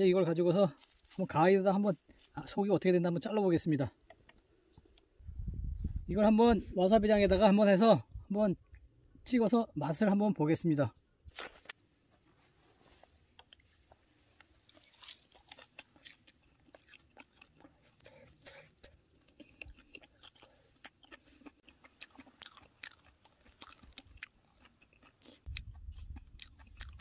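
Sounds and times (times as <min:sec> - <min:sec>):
crunchy chewing: 0:00.7 - 0:02.4, 0:12.7 - 0:27.0.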